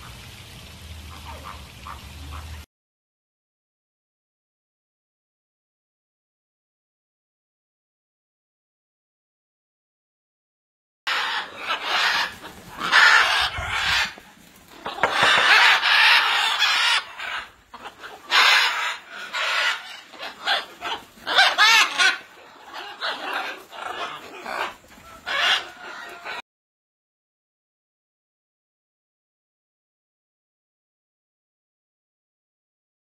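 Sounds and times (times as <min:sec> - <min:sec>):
macaws squawking: 0:01.1 - 0:02.6, 0:11.1 - 0:26.4.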